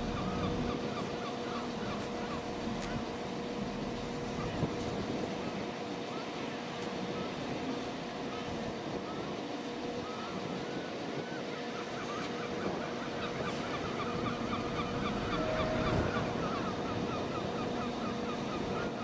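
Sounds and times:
diesel locomotive engine running: 0.0s - 5.5s, 13.2s - 19.0s.

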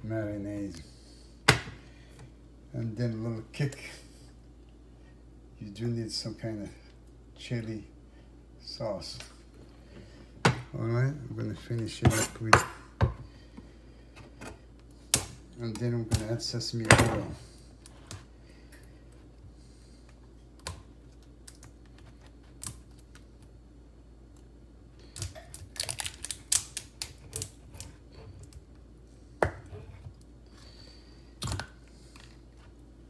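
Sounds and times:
plastic seal clicking and crackling: 25.2s - 27.6s.

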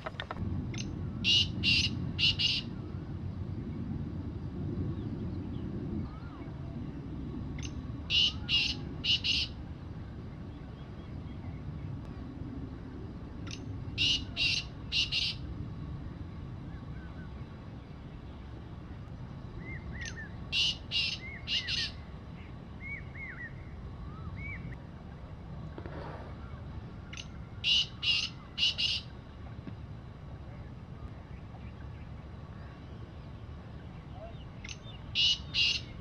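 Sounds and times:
small birds chirping: 0.0s - 2.9s, 7.6s - 9.6s, 16.7s - 24.8s, 26.4s - 29.1s, 30.7s - 36.0s
low background rumble: 0.0s - 36.0s.

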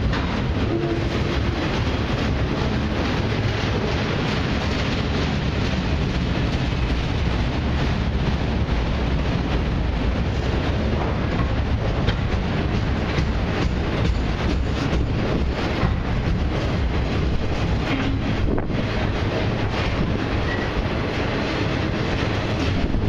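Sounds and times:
freight train rolling past: 0.0s - 23.0s.

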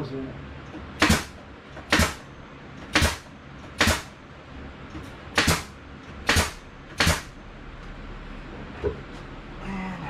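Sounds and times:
pneumatic nail gun firing: 1.0s - 2.2s, 2.9s - 4.2s, 5.3s - 7.3s.

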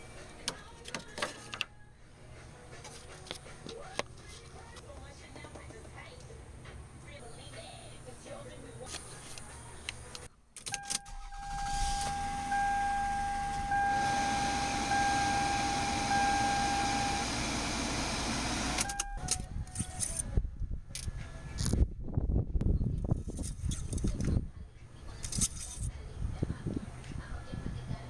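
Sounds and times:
steady high tone: 10.8s - 19.4s
car engine idling: 11.0s - 19.2s.

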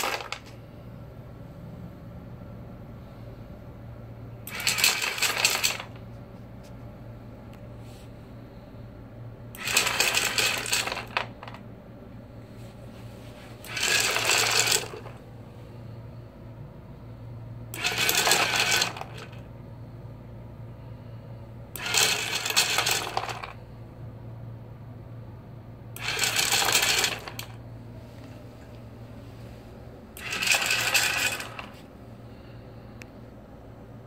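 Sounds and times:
small motor turning: 0.0s - 0.4s, 4.5s - 5.9s, 9.6s - 11.5s, 13.6s - 15.1s, 17.8s - 19.4s, 21.8s - 23.5s, 26.0s - 27.6s, 30.2s - 31.8s
dog biscuits rattling into tray: 0.0s - 0.5s, 4.5s - 5.9s, 9.6s - 11.6s, 13.7s - 15.1s, 17.8s - 19.4s, 21.9s - 23.5s
low steady hum: 0.0s - 34.0s.

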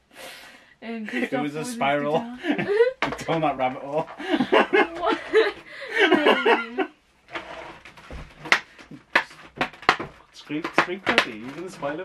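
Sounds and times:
people laughing: 1.1s - 3.0s, 4.2s - 6.9s
clicks and knocks of handled box: 7.8s - 12.0s.

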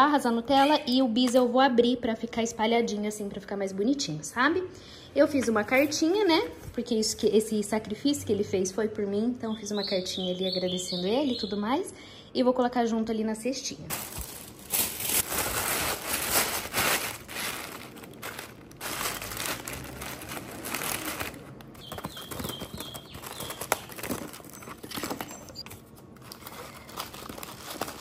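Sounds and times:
tissue paper crinkling: 13.9s - 28.0s
wrappers crinkling: 13.9s - 28.0s.

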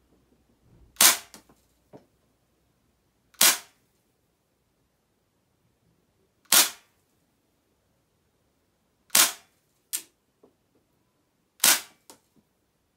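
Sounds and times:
airsoft pistol shots: 1.0s - 1.3s, 3.4s - 3.7s, 6.5s - 6.8s, 9.1s - 9.5s, 11.6s - 12.0s.

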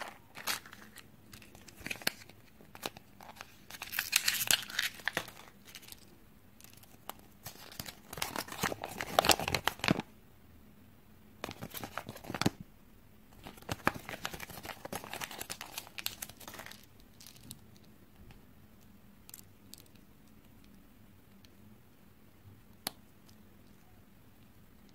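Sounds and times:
paper and wrapper crinkling: 0.0s - 10.1s, 11.4s - 12.6s, 13.4s - 17.7s.

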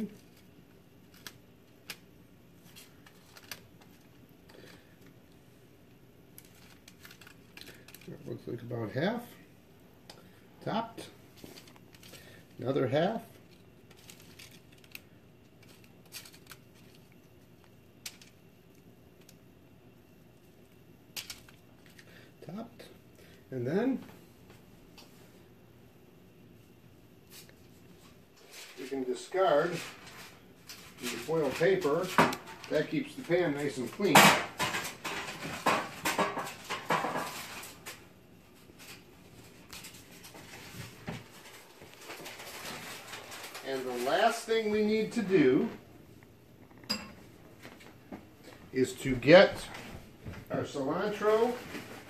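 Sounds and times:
clicks and rustles: 0.0s - 5.4s, 6.3s - 8.3s, 13.3s - 19.5s, 29.6s - 44.3s
faint room hum: 0.0s - 52.0s
plastic utensil scraping foil: 6.3s - 8.2s, 13.1s - 17.1s, 28.4s - 34.0s, 41.3s - 45.3s.

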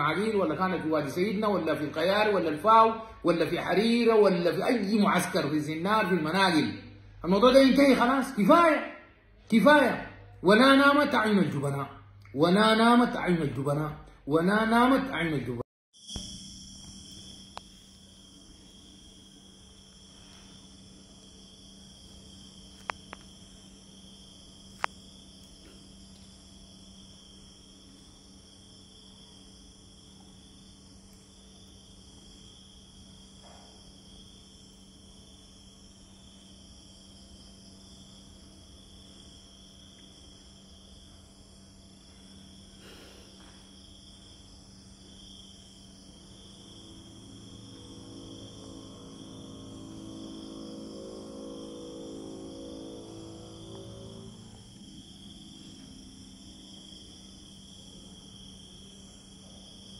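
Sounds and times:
insects chirring: 0.0s - 15.0s, 15.9s - 59.9s
low steady hum: 16.1s - 59.9s
low multi-pitched drone: 46.8s - 56.8s.

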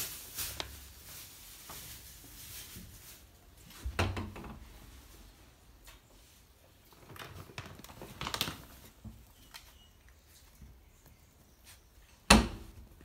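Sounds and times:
puppy scrabbling at plastic bag: 6.9s - 9.7s.

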